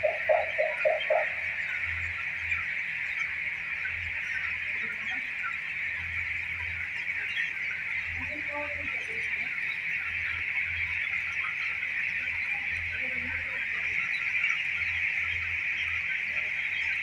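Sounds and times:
chicks peeping: 0:00.0 - 0:17.0.

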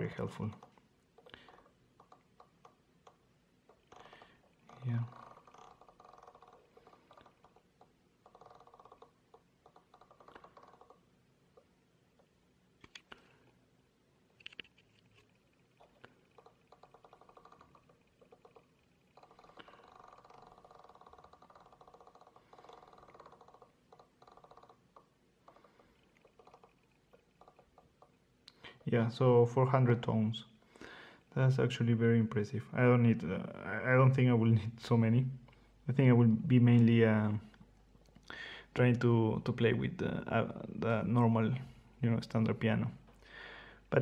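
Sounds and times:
rotary dial clicking: 0:00.1 - 0:11.0, 0:14.4 - 0:28.2.

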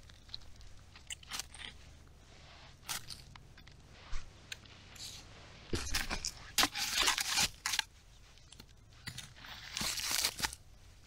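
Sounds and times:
bark tearing and crunching: 0:00.0 - 0:01.9, 0:05.8 - 0:10.7.

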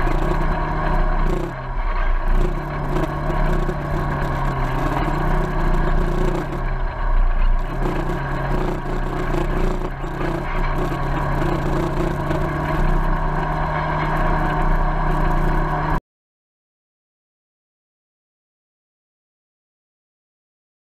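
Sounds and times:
engine running: 0:00.0 - 0:16.0
vehicle rattling over trail: 0:00.0 - 0:16.0.

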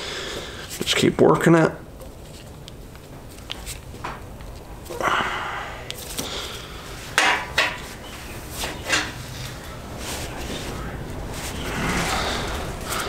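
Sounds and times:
hands rubbing and scraping hose: 0:02.0 - 0:05.0, 0:05.9 - 0:13.0.

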